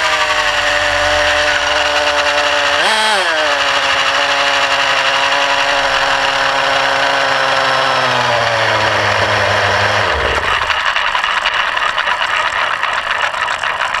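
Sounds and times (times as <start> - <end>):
rotor blades whooshing: 0.0 - 11.8
model helicopter engine idling: 0.0 - 14.0.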